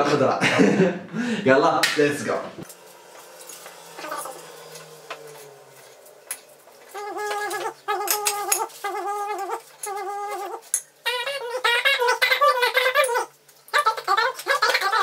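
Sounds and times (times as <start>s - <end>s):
busier wavering tune: 2.6s - 13.4s.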